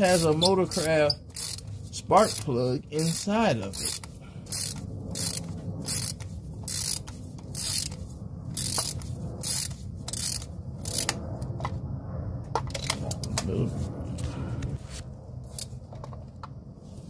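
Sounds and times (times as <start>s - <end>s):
ratchet pawl clicking: 0.0s - 11.2s.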